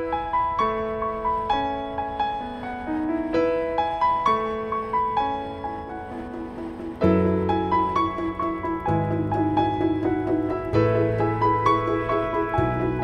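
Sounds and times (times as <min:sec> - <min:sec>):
gentle piano tune: 0:00.0 - 0:13.0.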